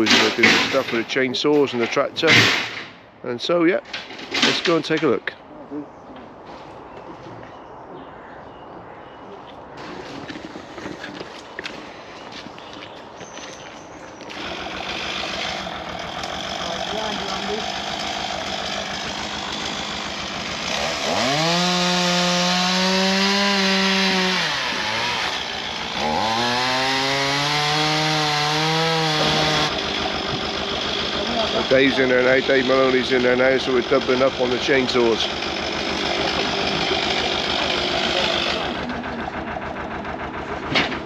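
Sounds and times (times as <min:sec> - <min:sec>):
chainsaw idling and revving: 0:14.2 - 0:41.0.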